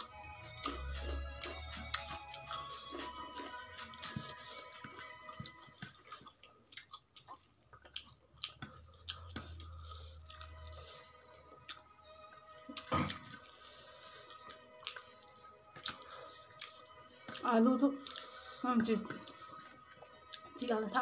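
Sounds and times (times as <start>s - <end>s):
chewing and smacking: 0.0s - 20.7s
faint background music: 0.0s - 21.0s.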